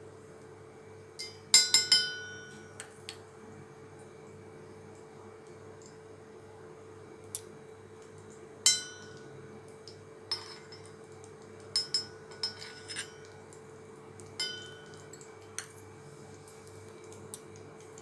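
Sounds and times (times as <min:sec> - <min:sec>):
metal spoon clinking on pan: 0:01.2 - 0:02.9, 0:08.6 - 0:09.3, 0:09.9 - 0:11.0, 0:11.6 - 0:13.4, 0:14.4 - 0:15.8.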